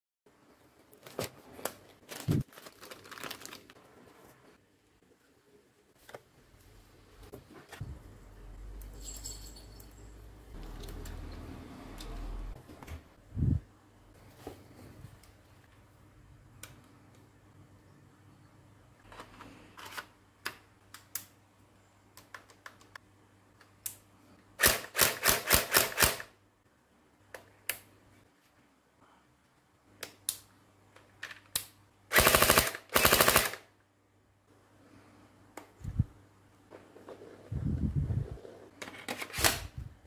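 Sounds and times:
toy blaster firing bursts: 0:32.1 - 0:33.6.

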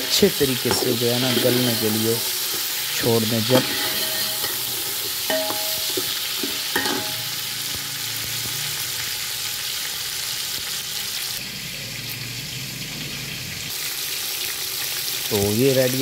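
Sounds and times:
metal ladle scraping a pot: 0:00.0 - 0:07.4
chicken sizzling in hot oil: 0:00.0 - 0:16.0.

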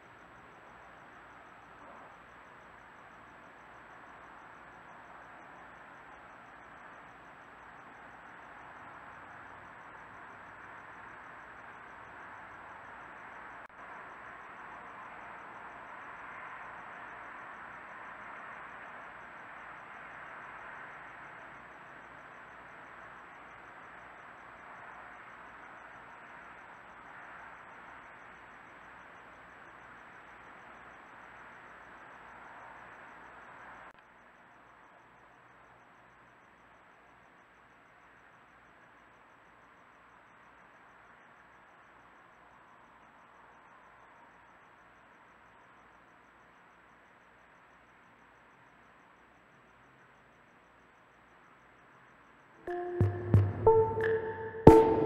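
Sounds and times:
faint electronic hiss: 0:00.0 - 0:55.0
faint high whine: 0:00.0 - 0:55.0
thin high whine: 0:40.3 - 0:55.0
faint high pulsing: 0:52.6 - 0:55.0.

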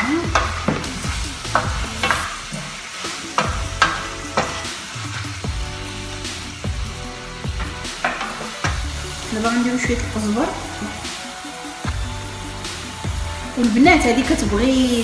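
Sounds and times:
seafood sizzling in frying pan: 0:00.0 - 0:15.0
wooden spoon scraping pan: 0:00.3 - 0:05.6, 0:07.4 - 0:09.4.

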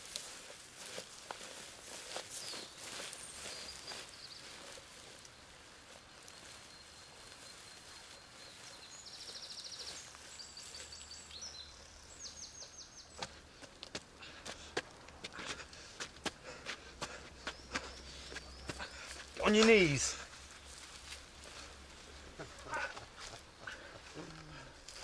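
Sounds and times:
footsteps on dry leaves: 0:00.0 - 0:12.5, 0:14.8 - 0:25.0
birds singing high trills: 0:02.2 - 0:05.1, 0:06.2 - 0:13.3.

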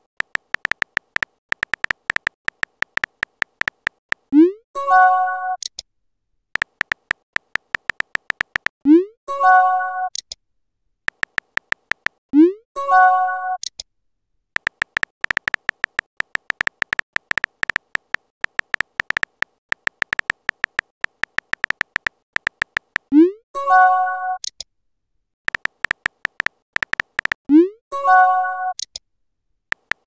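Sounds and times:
synthetic keyboard clicks: 0:00.0 - 0:04.5, 0:06.6 - 0:09.0, 0:11.1 - 0:12.2, 0:14.6 - 0:23.3, 0:25.5 - 0:27.6, 0:28.7 - 0:29.0, 0:29.7 - 0:30.0.

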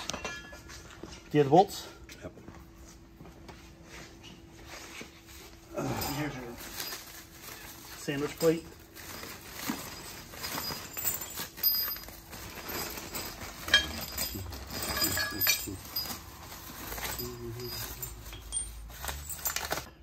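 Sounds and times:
plastic bag rustling: 0:06.2 - 0:20.0
metal bolts clinking: 0:10.0 - 0:16.4.

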